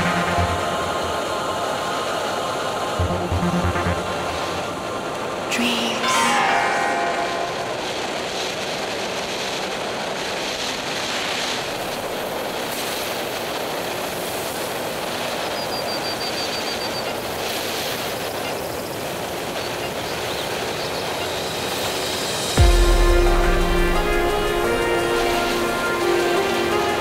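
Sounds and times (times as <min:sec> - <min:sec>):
music: 0:00.0 - 0:01.3, 0:03.0 - 0:04.8, 0:22.4 - 0:27.0
wind and road rush: 0:00.0 - 0:03.2, 0:06.6 - 0:27.0.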